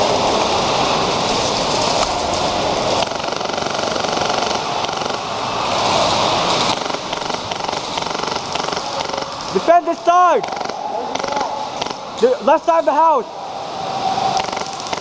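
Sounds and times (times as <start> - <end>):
airsoft guns firing full auto: 3.0 - 5.3, 6.6 - 9.7, 10.4 - 12.0, 14.4 - 15.0.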